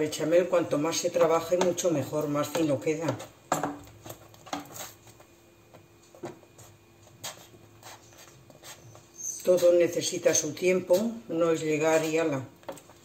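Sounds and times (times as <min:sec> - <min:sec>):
wooden spoon stirring sauce: 0:00.4 - 0:09.8.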